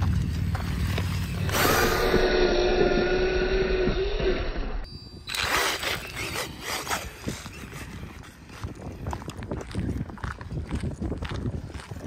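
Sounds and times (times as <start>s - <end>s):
electric motor whining: 1.1s - 8.1s.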